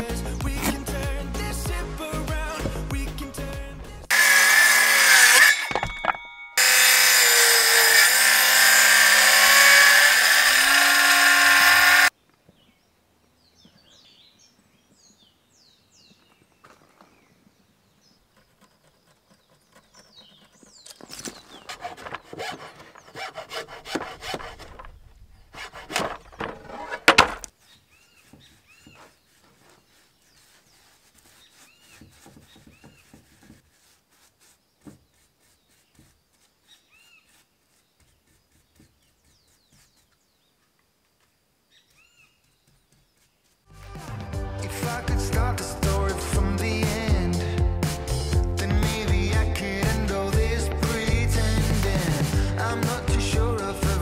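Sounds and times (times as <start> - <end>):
bird chirping: 12.1 - 23.3, 27.5 - 33.2, 34.6 - 40.8, 41.6 - 43.6
rough rubbing on wood: 18.2 - 40.2
paint brush scraping boards: 18.2 - 40.4, 42.4 - 44.2.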